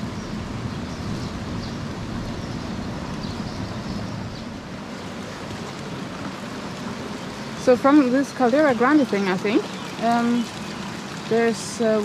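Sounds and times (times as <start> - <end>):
faint water splashes: 4.4 - 12.0
water rushing down stone channel: 4.6 - 12.0.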